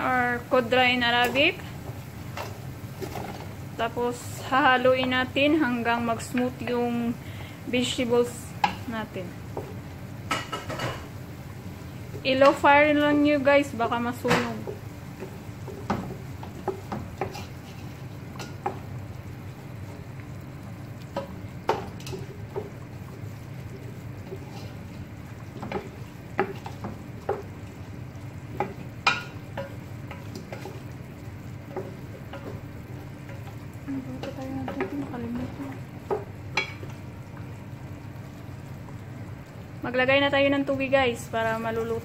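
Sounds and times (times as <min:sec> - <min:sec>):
wooden spoon scraping a pot: 0:24.2 - 0:25.0.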